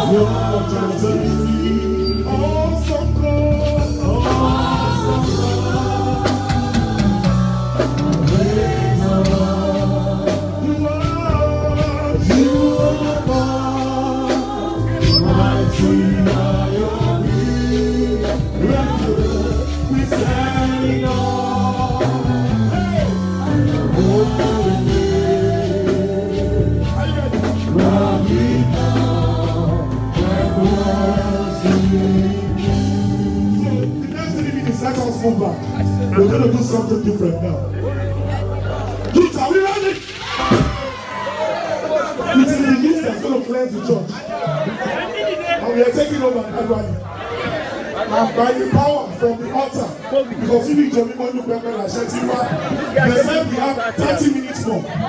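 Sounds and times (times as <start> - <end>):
lead singer on microphone: 0.0 - 38.8
band with steady bass: 0.0 - 55.0
congregation singing: 0.0 - 55.0.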